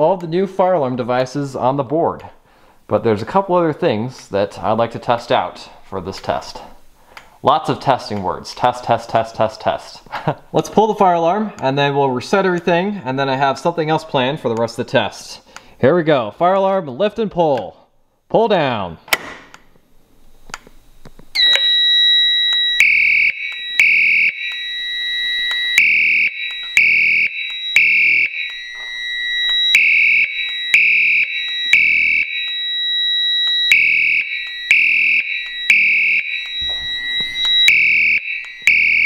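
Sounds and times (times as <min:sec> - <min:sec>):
fire alarm horn blasts: 0:21.4 - 0:39.0
steady high-pitched tone: 0:21.4 - 0:39.0.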